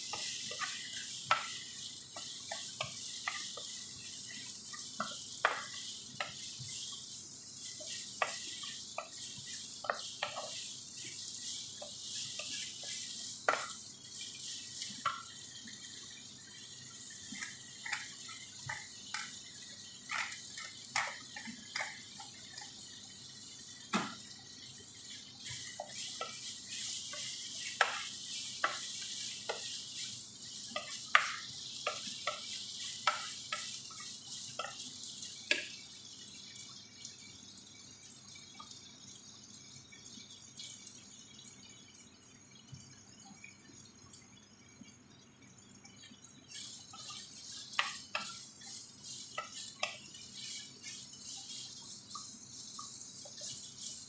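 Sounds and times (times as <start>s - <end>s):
wooden spoon tapping a pan: 0.0s - 6.8s, 7.8s - 11.2s, 11.8s - 13.8s, 15.0s - 15.3s, 17.4s - 19.4s, 20.1s - 22.7s, 25.8s - 30.0s, 30.7s - 34.8s, 35.5s - 35.7s, 47.0s - 48.4s, 49.0s - 50.6s
frying hiss: 0.0s - 54.0s.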